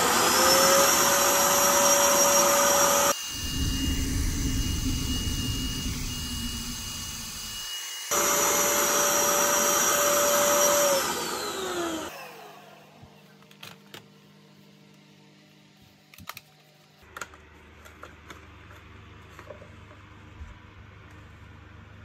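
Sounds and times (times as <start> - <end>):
stick vacuum whining: 0.0 - 13.2.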